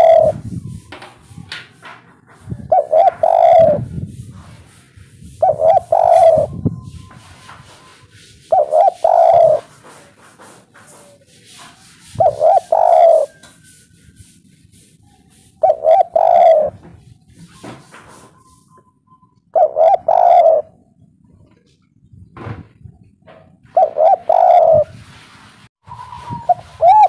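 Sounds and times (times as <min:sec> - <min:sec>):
dove cooing: 0:00.0 - 0:00.4, 0:02.6 - 0:03.9, 0:05.4 - 0:07.8, 0:08.4 - 0:09.8, 0:12.0 - 0:13.4, 0:15.6 - 0:16.8, 0:19.6 - 0:20.8, 0:23.7 - 0:24.9, 0:26.3 - 0:27.0.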